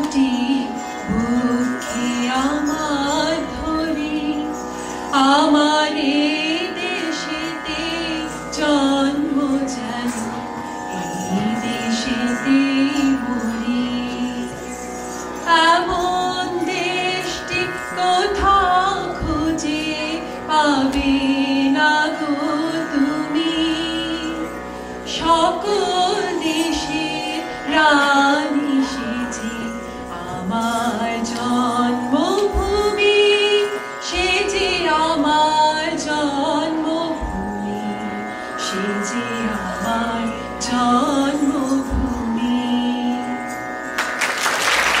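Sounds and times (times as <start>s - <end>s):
woman singing into microphone: 0.0s - 43.5s
drone accompaniment: 0.0s - 45.0s
audience applause: 44.0s - 45.0s.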